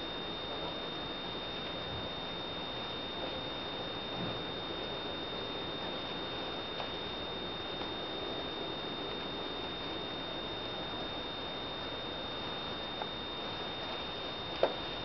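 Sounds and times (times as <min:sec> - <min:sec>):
high-pitched whine: 0:00.0 - 0:15.0.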